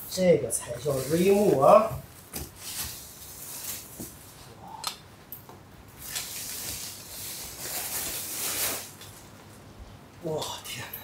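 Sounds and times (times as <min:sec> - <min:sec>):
plastic wrapping rustling: 0:00.6 - 0:04.5, 0:06.0 - 0:09.7.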